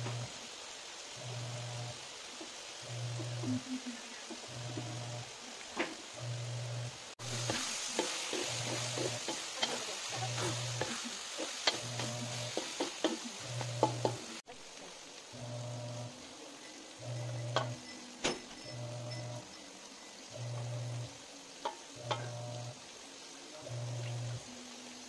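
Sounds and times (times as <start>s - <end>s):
meat sizzling in a wok: 0.0s - 25.0s
spatula scraping a pan: 7.2s - 14.4s.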